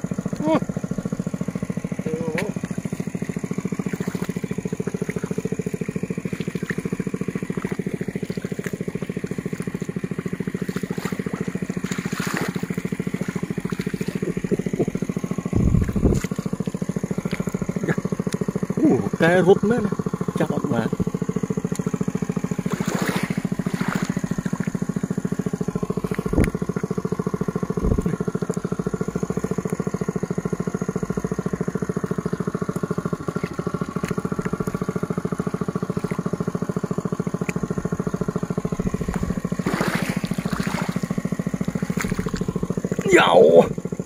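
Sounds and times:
small engine running: 0.0 - 44.0.

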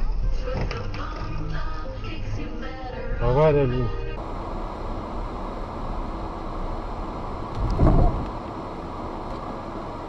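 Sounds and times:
cars driving past: 4.2 - 10.0
low rumble: 4.2 - 10.0.

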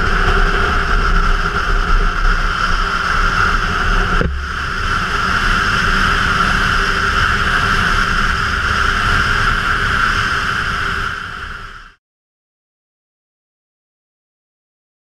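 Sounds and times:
motorcycle engine rumble: 0.0 - 12.0
wind and road noise: 0.0 - 12.0.

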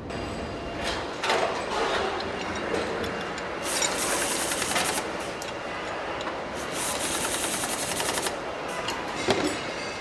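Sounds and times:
factory floor noise: 0.0 - 10.0
pneumatic air tool rattling: 3.6 - 5.2, 6.6 - 8.4.

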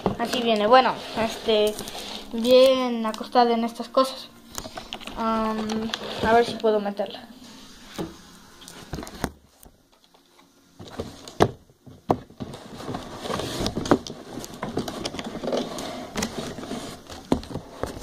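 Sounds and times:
plastic scraping on cardboard: 0.0 - 2.7, 4.6 - 6.7, 12.2 - 18.0.

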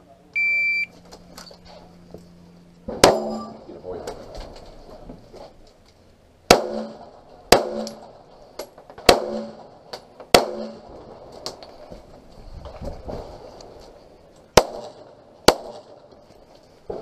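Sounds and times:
loud pistol shots: 6.5 - 8.1, 9.0 - 11.1, 14.6 - 16.0.

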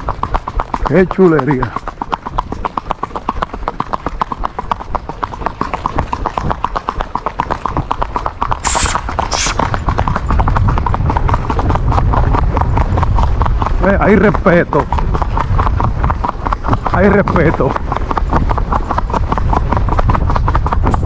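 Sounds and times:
horse hooves on asphalt: 0.0 - 21.0
short hisses: 8.6 - 9.7.

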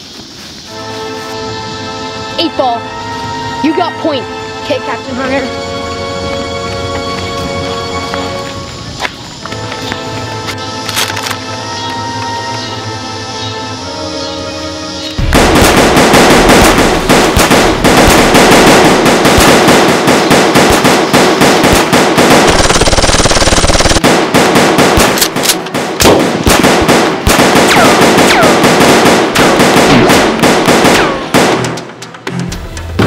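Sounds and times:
rapid automatic gunfire: 15.2 - 31.8.

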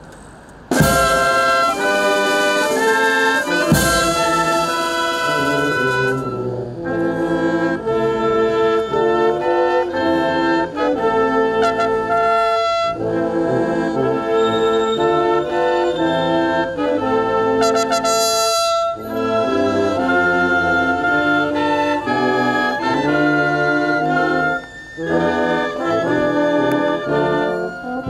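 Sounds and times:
brass band playing chords: 0.7 - 28.0.

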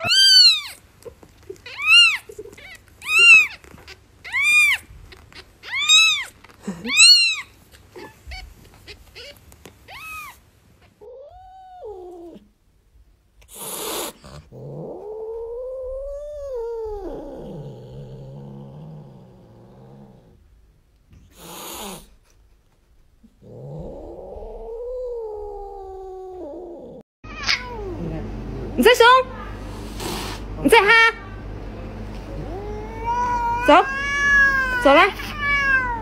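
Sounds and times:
cat yowling: 0.0 - 0.8, 1.6 - 10.4, 11.0 - 12.4, 14.8 - 17.8, 23.8 - 28.0, 32.4 - 36.0.

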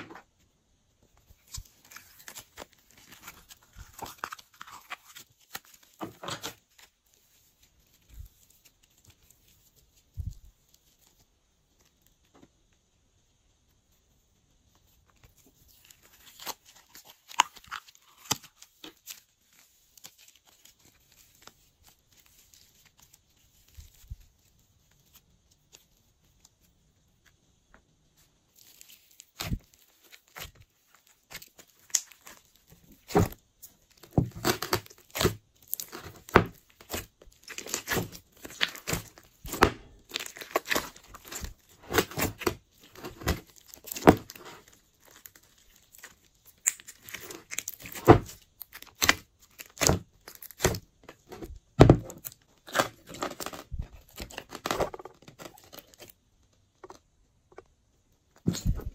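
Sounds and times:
slime squishing and popping: 34.0 - 50.8.

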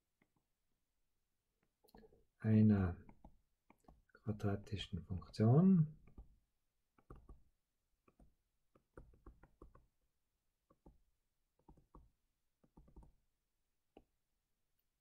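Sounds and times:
stylus tapping on touchscreen: 3.0 - 4.2, 5.2 - 13.3, 13.9 - 14.2.

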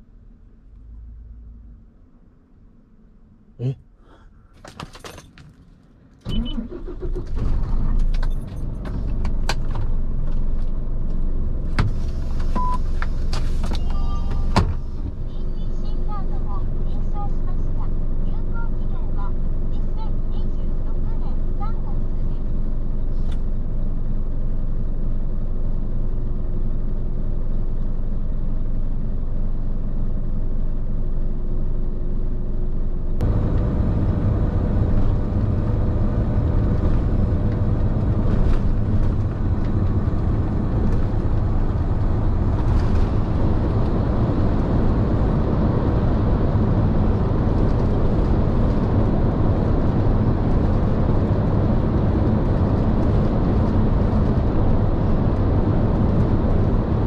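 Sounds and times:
truck engine and road noise: 0.0 - 57.0
diesel truck engine idling: 14.0 - 47.5.

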